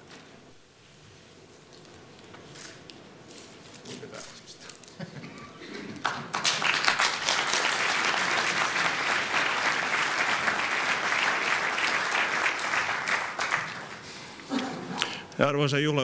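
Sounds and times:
audience applauding: 6.0s - 15.2s.

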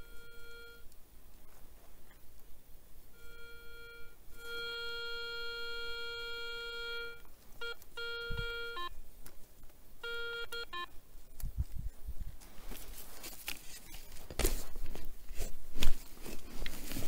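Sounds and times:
metal detector beeps: 0.0s - 0.9s, 3.2s - 9.0s, 10.0s - 10.9s.

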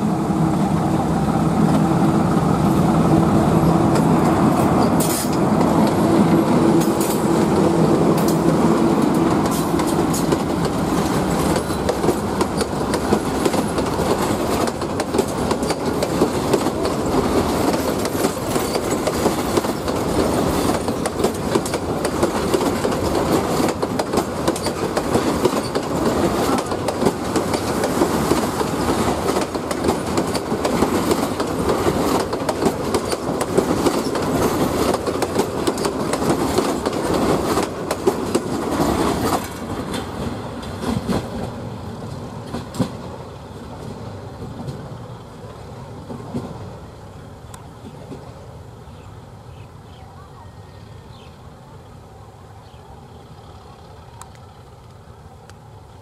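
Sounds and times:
train coaches rumbling past: 0.0s - 56.0s
wheels clattering over rail joints: 3.9s - 6.2s, 8.1s - 45.0s.

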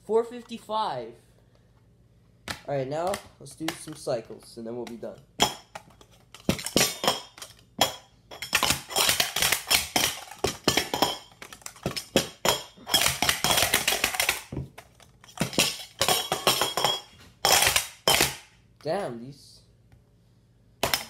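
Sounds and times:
metal cups clacking: 5.4s - 14.4s, 15.2s - 18.4s.

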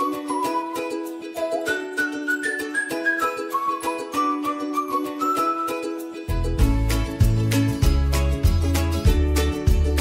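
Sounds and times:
upbeat background music: 0.0s - 10.0s.

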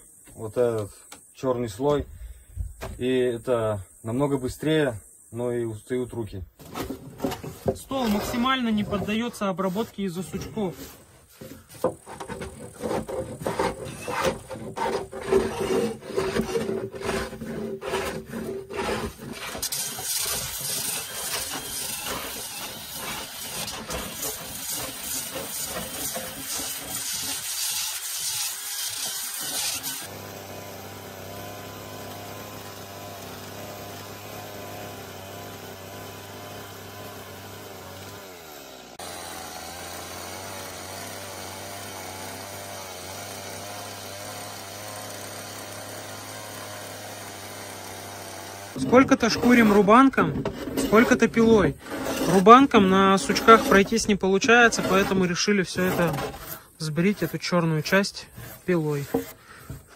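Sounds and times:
hand tools scraping wood: 6.6s - 59.9s
sanding disc grinding with hiss: 7.9s - 30.1s, 48.8s - 59.9s
chainsaw running: 10.2s - 57.2s.

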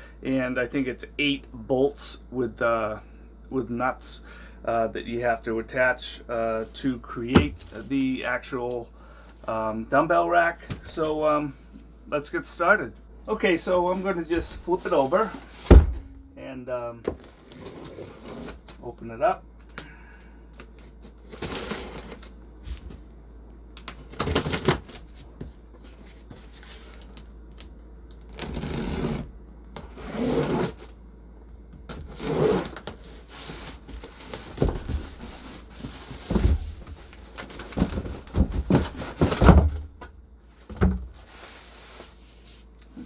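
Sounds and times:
dull thumps of box: 7.4s - 7.8s, 15.4s - 16.2s, 33.7s - 41.3s
cardboard scraping and rustling: 13.7s - 16.1s, 17.1s - 18.8s, 20.8s - 22.9s, 31.9s - 42.7s.

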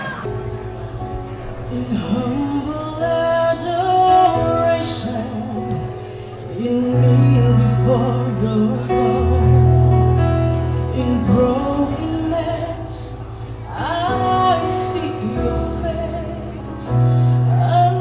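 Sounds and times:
keyboard accompaniment: 0.0s - 18.0s.

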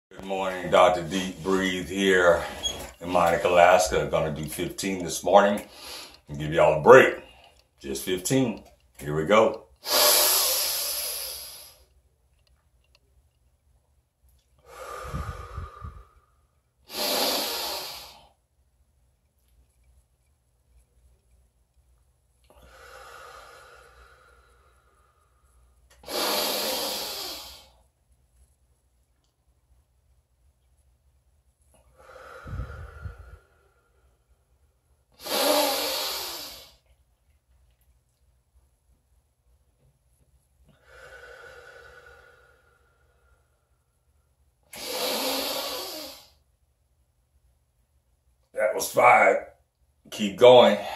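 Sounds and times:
man breathing deeply: 9.8s - 11.9s, 14.6s - 18.3s, 22.6s - 27.8s, 31.9s - 34.3s, 40.7s - 43.9s.

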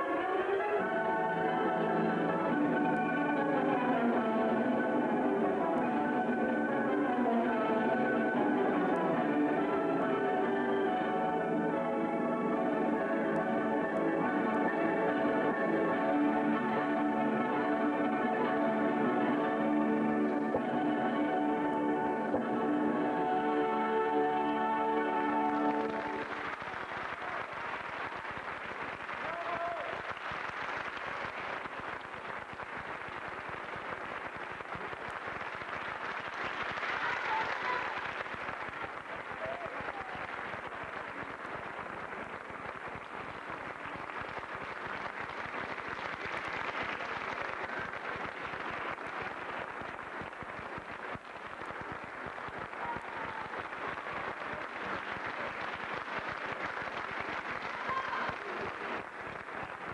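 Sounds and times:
audience applauding: 25.0s - 59.9s.

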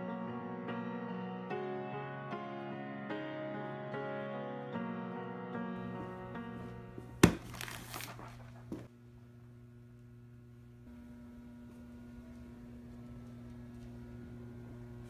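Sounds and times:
piano music: 0.0s - 7.8s
faint low hum: 8.3s - 15.0s.

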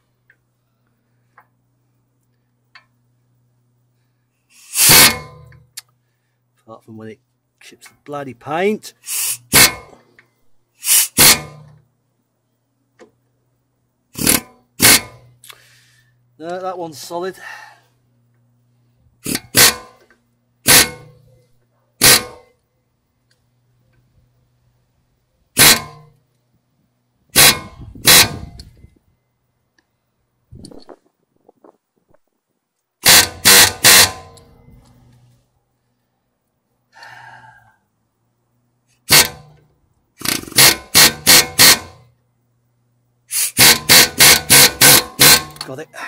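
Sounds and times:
faint low hum: 0.0s - 4.6s, 11.5s - 33.0s, 34.2s - 40.2s, 42.0s - 43.3s
hammer drill hammering: 4.7s - 5.6s, 9.1s - 10.0s, 10.9s - 11.7s, 14.2s - 15.2s, 19.2s - 20.0s, 20.6s - 21.2s, 22.0s - 22.5s, 25.6s - 26.1s, 27.3s - 28.6s, 33.0s - 34.4s, 39.1s - 39.6s, 40.2s - 42.0s, 43.4s - 45.6s.

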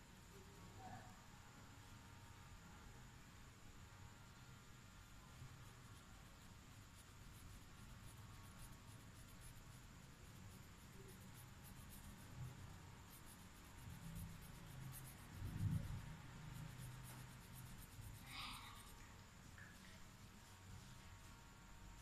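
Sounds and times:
low background hum: 0.0s - 22.0s
marker scratching on paper: 5.6s - 19.0s.

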